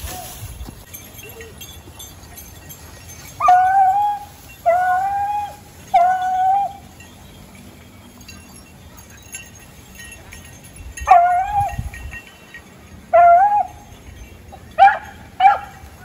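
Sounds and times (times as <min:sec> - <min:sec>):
dog baying: 0:03.4 - 0:06.9, 0:11.0 - 0:11.8, 0:13.1 - 0:13.9.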